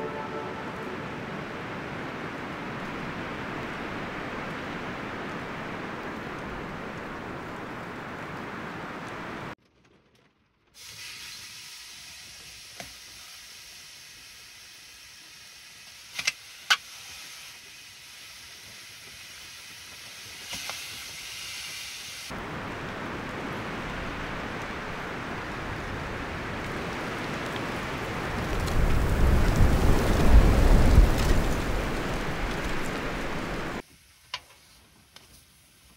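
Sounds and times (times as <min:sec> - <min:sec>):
steady rain: 0:00.0 - 0:35.9
bok choy sizzling on stove: 0:10.8 - 0:22.4, 0:33.8 - 0:35.9.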